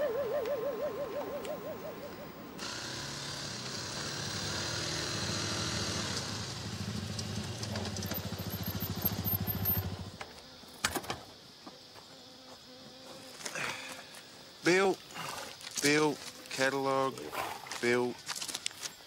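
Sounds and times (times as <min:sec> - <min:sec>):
motorcycle engine idling: 0:05.7 - 0:10.2.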